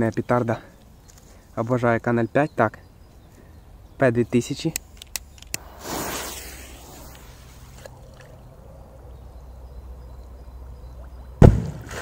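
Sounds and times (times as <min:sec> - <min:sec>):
deep underwater firecracker boom: 0:11.4 - 0:11.9.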